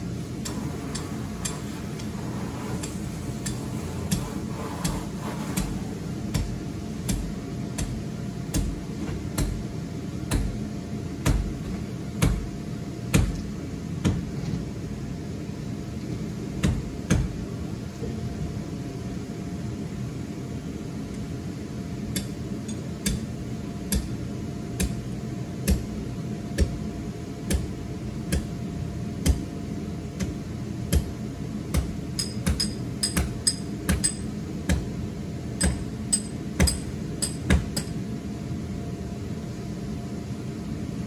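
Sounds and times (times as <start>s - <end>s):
blower humming: 0.0s - 12.8s
hammer striking metal stake: 31.8s - 34.2s.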